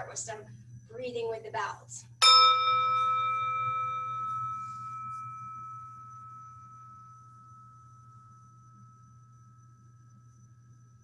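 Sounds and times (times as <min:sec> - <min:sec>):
meditation bell ringing: 0:02.2 - 0:10.1.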